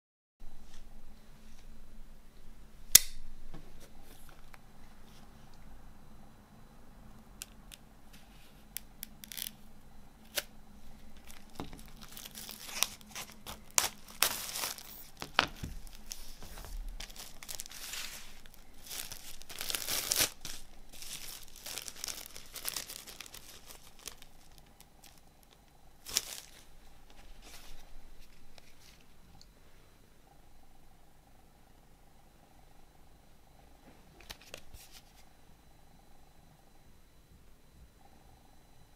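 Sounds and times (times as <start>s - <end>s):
plastic film crinkling and tearing: 7.4s - 9.6s, 10.2s - 10.5s, 11.1s - 29.1s.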